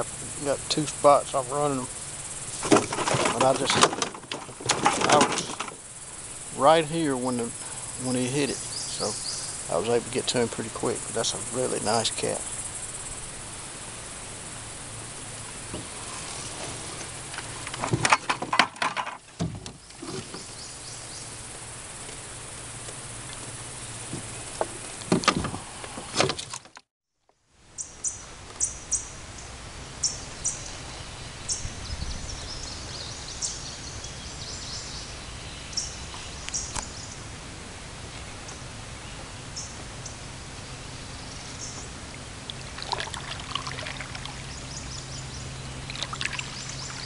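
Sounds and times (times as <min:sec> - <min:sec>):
birds chirping: 0:00.0 - 0:17.8, 0:19.7 - 0:22.2, 0:27.8 - 0:37.3, 0:38.4 - 0:47.0
crickets buzzing: 0:00.0 - 0:47.0
knocks and clatter in boat: 0:02.6 - 0:05.8, 0:17.0 - 0:20.5, 0:24.1 - 0:26.8.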